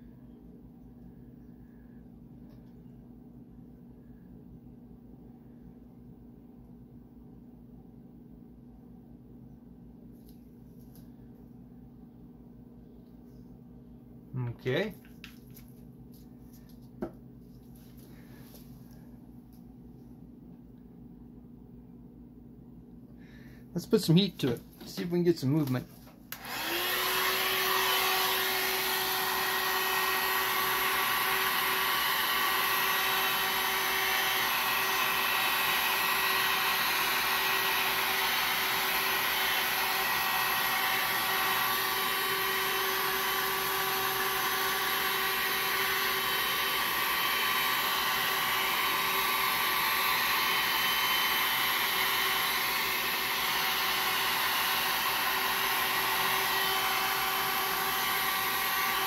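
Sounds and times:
hot-air blower running: 15.5s - 19.6s, 23.2s - 59.0s.

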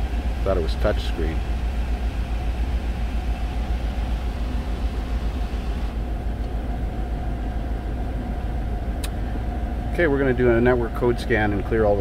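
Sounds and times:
air rushing from vents: 0.0s - 12.0s
engine idling with misfire: 0.0s - 12.0s.

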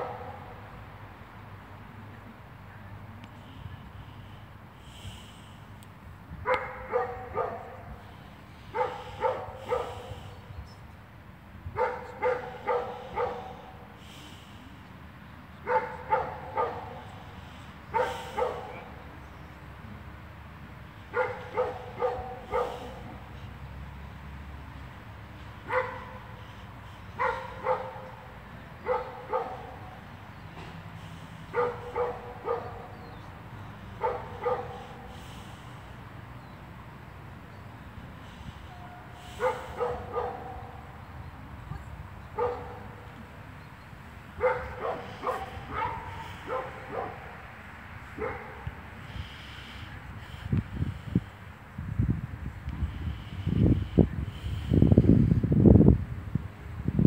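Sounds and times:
dog barking: 0.0s - 0.5s, 6.4s - 8.0s, 8.7s - 10.3s, 11.8s - 13.8s, 15.6s - 17.1s, 17.9s - 19.0s, 21.1s - 23.2s, 25.6s - 26.3s, 27.2s - 30.0s, 31.5s - 33.2s, 34.0s - 35.1s, 38.8s - 40.9s, 42.4s - 43.0s, 44.4s - 47.4s, 48.2s - 48.7s.

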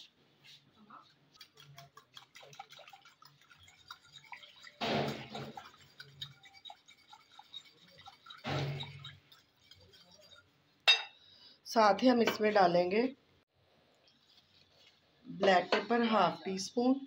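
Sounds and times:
fork beating milk in glass bowl: 1.0s - 10.6s.

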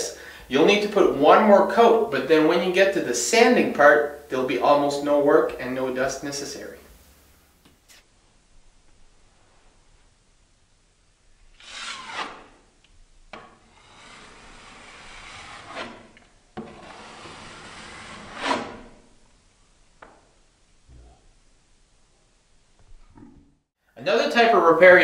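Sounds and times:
putty knife scraping wall: 11.5s - 12.7s, 13.3s - 19.2s.

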